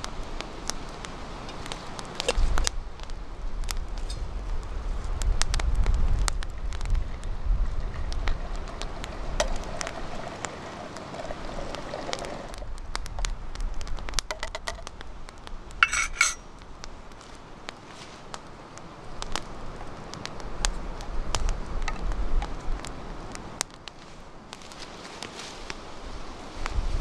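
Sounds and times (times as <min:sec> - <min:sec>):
campfire crackling and popping: 0:00.0 - 0:27.0
liquid pouring into metal mug: 0:07.8 - 0:12.6
metallic clink: 0:15.8 - 0:16.4.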